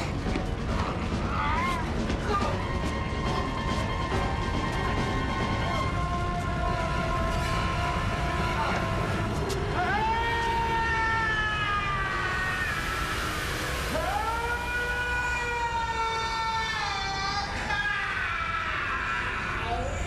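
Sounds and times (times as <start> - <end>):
man screaming: 7.0 - 13.3.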